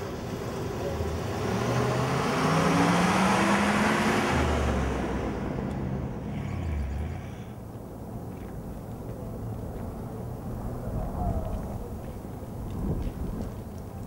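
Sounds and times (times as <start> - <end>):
vehicle passing: 0.0 - 7.7
low engine hum: 0.0 - 14.0.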